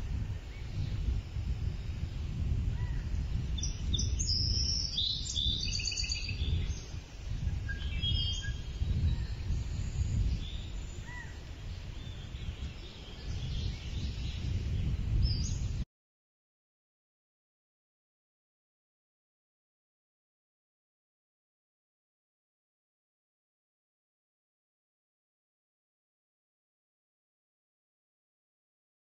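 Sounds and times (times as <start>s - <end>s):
birds chirping: 0.0s - 15.8s.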